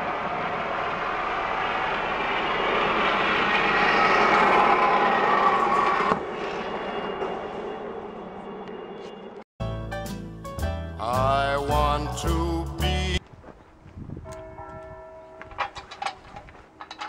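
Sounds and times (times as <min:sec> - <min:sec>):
zipline trolley whirring on cable: 0:00.0 - 0:09.0.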